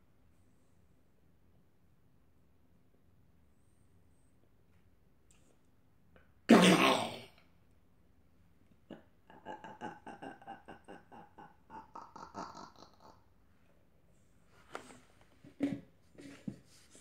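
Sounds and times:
person's short loud vocal sound: 6.5 - 7.3.

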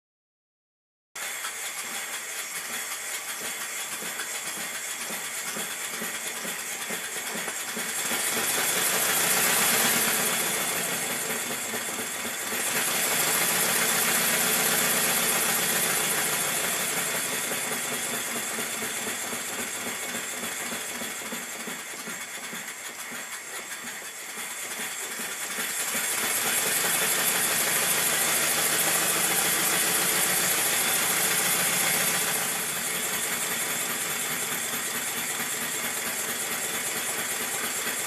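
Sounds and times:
model steam engine exhaust beating: 1.2 - 38.0.

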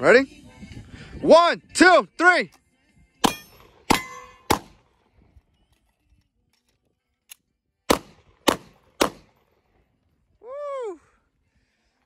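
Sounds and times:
pistol shots: 3.2 - 5.0, 7.9 - 9.6.

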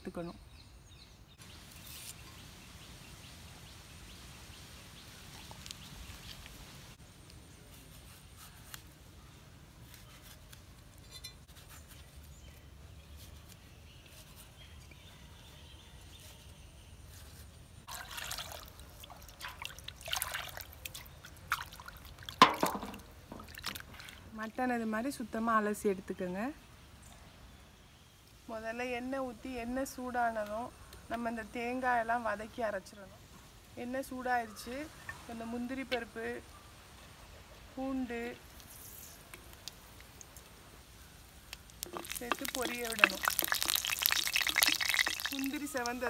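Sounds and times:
water splashing and trickling: 17.8 - 24.6, 38.2 - 46.0.

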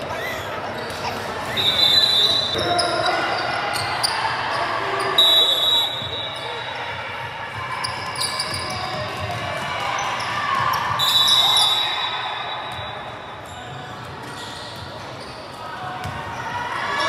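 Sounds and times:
shoe squeal: 0.0 - 6.9, 7.8 - 9.1, 10.0 - 15.6
basketball bouncing: 8.4 - 9.7.

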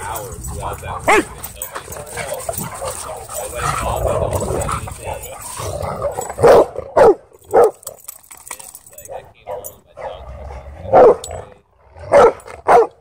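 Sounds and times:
dog barking loudly: 0.0 - 5.2, 6.0 - 7.8, 10.8 - 11.3, 12.0 - 13.0
dogs snarling and scuffling: 0.0 - 13.0.

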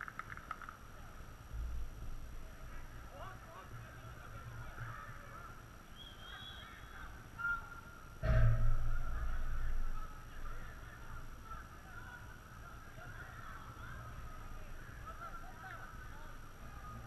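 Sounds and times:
distant shouts and calls: 2.6 - 17.0
thump near microphone: 8.2 - 9.0.

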